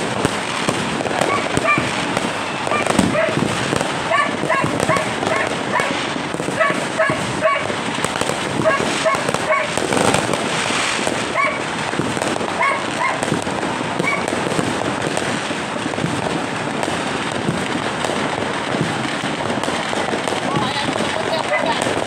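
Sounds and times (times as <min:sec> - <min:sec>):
fireworks crackling and banging: 0:00.0 - 0:22.0
dog barking: 0:01.2 - 0:01.9, 0:04.1 - 0:07.7, 0:08.6 - 0:09.8, 0:11.3 - 0:11.6, 0:12.5 - 0:13.2, 0:14.0 - 0:14.3.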